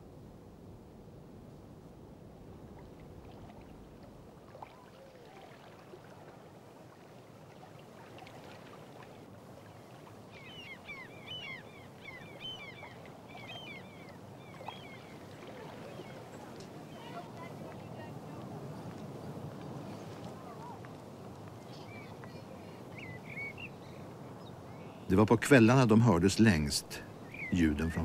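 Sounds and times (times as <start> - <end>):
small birds chirping: 10.3 - 20.0, 21.6 - 25.1, 27.1 - 28.0.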